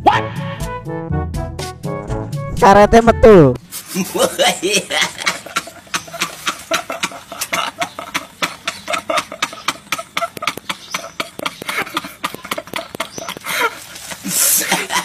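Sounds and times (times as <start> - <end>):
men laughing uncontrollably: 3.8 - 15.0.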